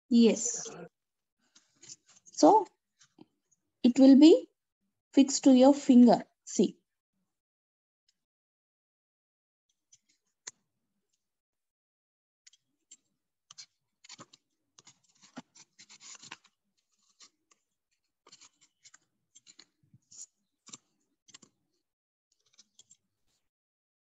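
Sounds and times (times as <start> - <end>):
paper scratching and clicking: 12.5 - 21.6, 22.3 - 23.4.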